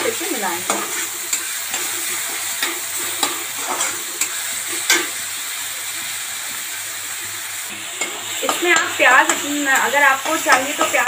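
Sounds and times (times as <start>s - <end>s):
onions sizzling in hot oil: 0.0s - 11.0s
metal spatula scraping: 0.6s - 5.2s, 7.7s - 11.0s.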